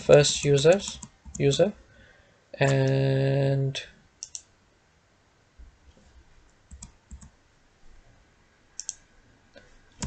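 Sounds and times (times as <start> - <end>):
mouse and keyboard clicks: 0.6 - 1.4, 4.2 - 4.5, 6.7 - 7.3, 8.8 - 9.0.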